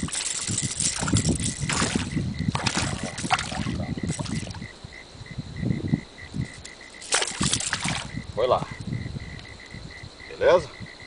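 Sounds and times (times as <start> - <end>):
fish thrashing and splashing: 0.0 - 4.6, 6.9 - 8.2.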